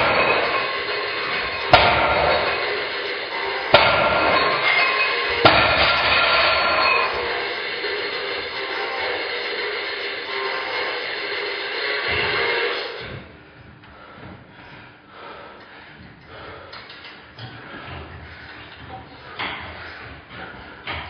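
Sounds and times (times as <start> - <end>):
music: 7.0 - 13.1.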